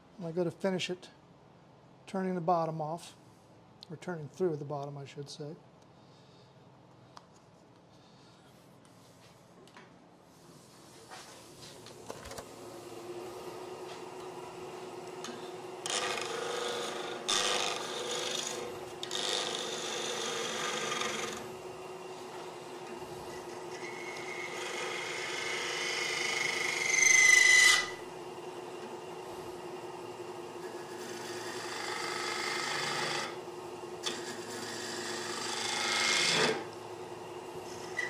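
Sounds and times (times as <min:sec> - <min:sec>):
wood lathe humming: 0:12.5 - 0:38.0
turning tool shaving wood: 0:13.0 - 0:38.0
high-pitched tool squeal: 0:25.2 - 0:28.0.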